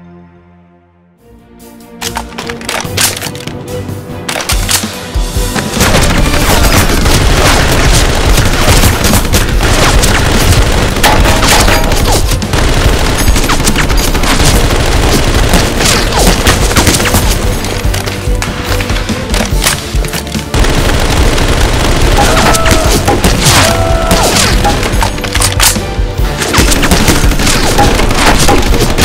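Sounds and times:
background music: 0.0s - 29.0s
rapid gunfire: 5.6s - 25.6s, 26.4s - 29.0s.

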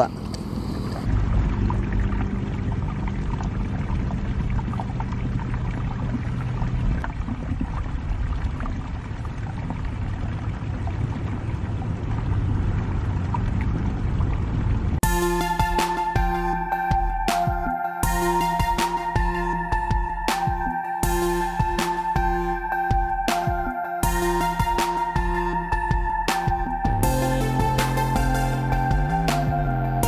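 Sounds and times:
low steady hum: 0.0s - 17.2s
music: 15.0s - 30.0s.

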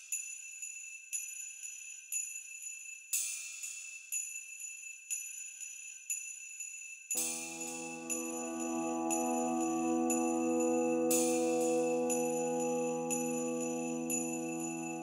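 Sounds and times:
jingle bells shaken in a beat: 0.0s - 15.0s
high shimmering ring: 7.2s - 15.0s
low instrument chord: 7.3s - 15.0s.

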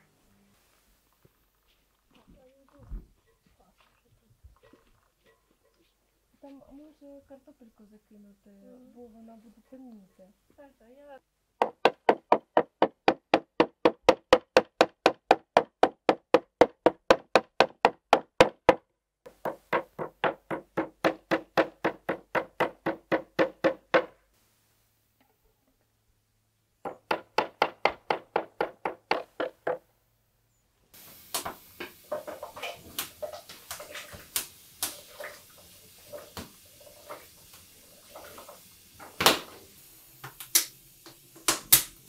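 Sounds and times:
meat mallet pounding on wooden board: 11.6s - 24.2s, 26.8s - 29.8s.

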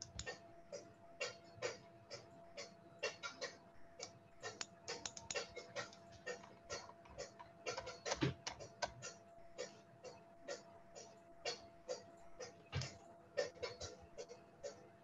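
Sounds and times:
keyboard and mouse clicking: 0.0s - 0.4s, 1.2s - 9.2s.

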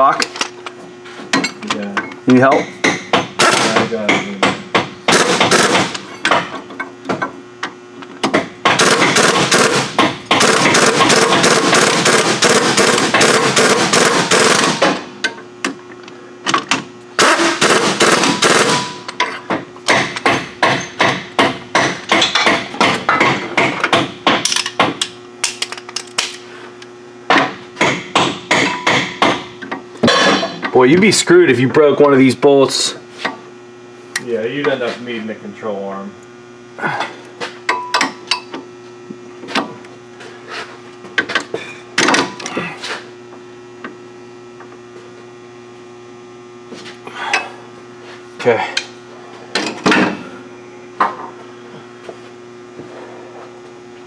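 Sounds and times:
impact wrench hammering: 2.4s - 7.4s, 8.2s - 15.8s, 16.5s - 26.4s, 27.3s - 30.7s, 37.7s - 38.6s.

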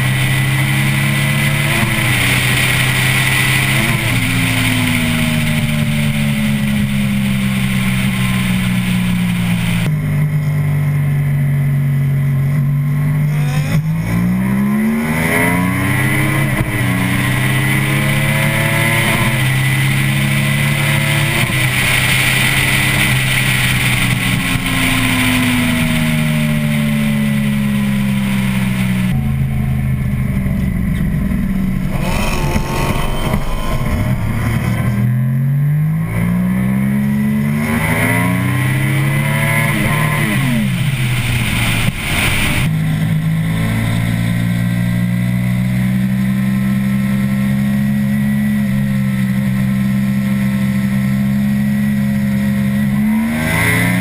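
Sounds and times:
motorcycle engine at speed: 0.0s - 54.0s
wind rush: 15.2s - 36.1s.

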